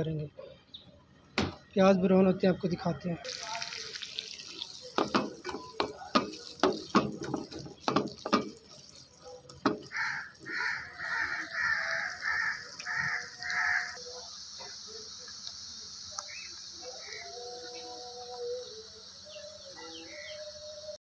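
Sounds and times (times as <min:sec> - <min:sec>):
onions sizzling in oil: 0:03.2 - 0:21.0
harsh animal call: 0:09.9 - 0:14.0.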